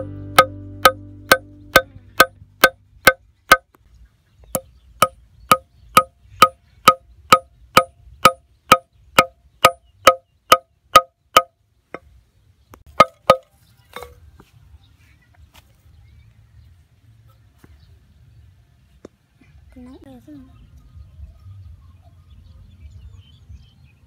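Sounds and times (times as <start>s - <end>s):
hammering nail into wood: 0.0s - 3.7s, 4.6s - 11.5s.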